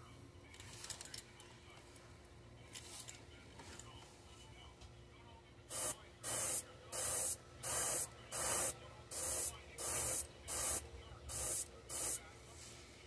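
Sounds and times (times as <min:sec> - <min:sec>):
airbrush spraying hiss: 0:05.7 - 0:12.2.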